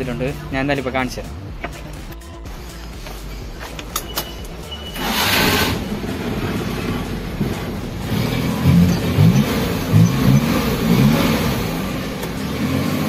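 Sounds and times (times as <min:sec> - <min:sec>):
car engine starting and running: 0:00.0 - 0:13.0
engine revving: 0:04.5 - 0:13.0.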